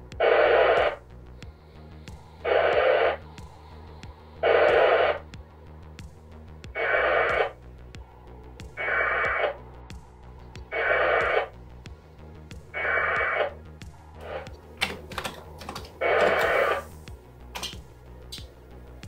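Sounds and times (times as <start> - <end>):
radio data tone bursts: 0.1 - 1.0, 2.4 - 3.3, 4.4 - 5.3, 6.7 - 7.6, 8.7 - 9.6, 10.7 - 11.6, 12.7 - 13.6, 16.0 - 16.9
sharp clicks: 14.2 - 16.8.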